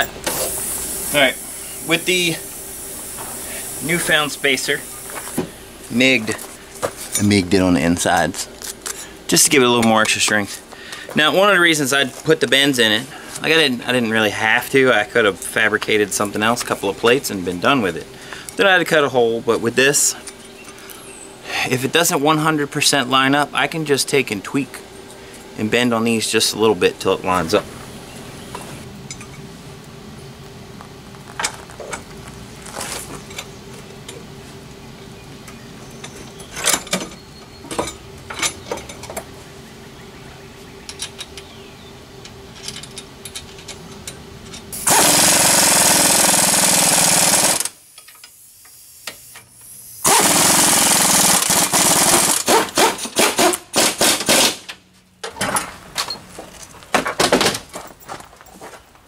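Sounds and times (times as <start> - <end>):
tools clanking on metal: 36.0 - 39.3, 42.5 - 44.7
handheld power tool running: 44.8 - 47.8, 50.0 - 54.5.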